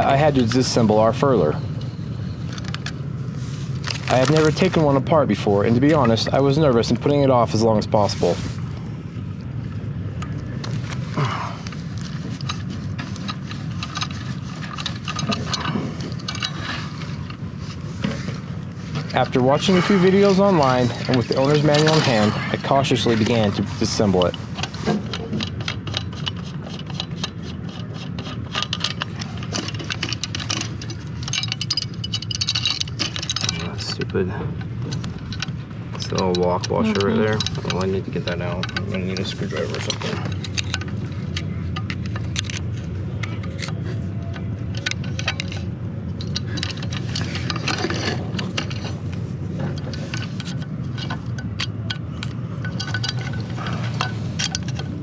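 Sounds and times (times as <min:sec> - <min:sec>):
screwdriver scraping metal: 0:19.0 - 0:33.6, 0:36.1 - 0:55.0
metal fittings clicking: 0:34.9 - 0:49.0.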